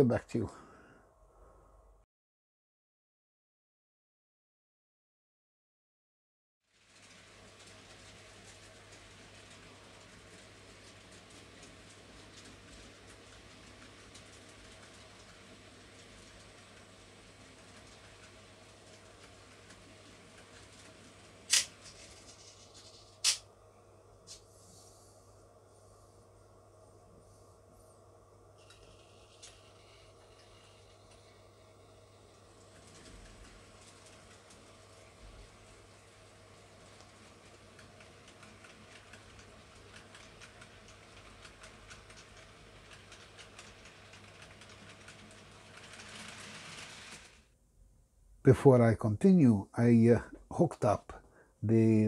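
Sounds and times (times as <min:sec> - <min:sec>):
model train wheels clicking: 0:17.5 - 0:22.6, 0:36.9 - 0:47.4
model train running hiss: 0:45.7 - 0:47.5.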